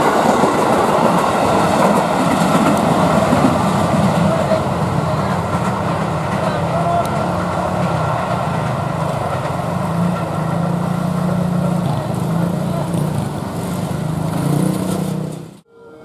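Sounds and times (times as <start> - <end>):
small motorcycle engines running: 10.2 - 15.6.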